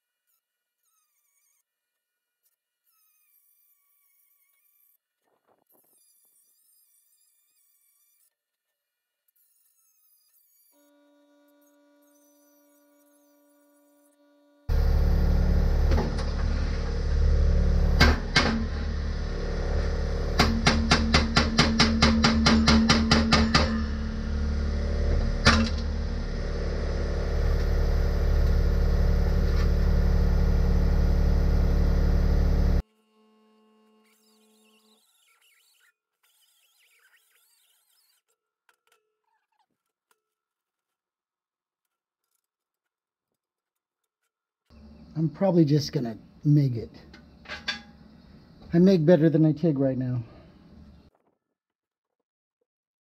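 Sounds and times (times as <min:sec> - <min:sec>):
loud machine running: 0:14.7 - 0:32.8
sharp knocks: 0:18.0 - 0:18.8, 0:20.4 - 0:23.9.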